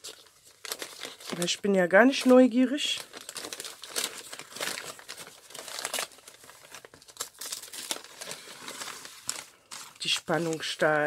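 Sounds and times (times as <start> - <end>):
wrapping paper crinkling: 0.0 - 11.0.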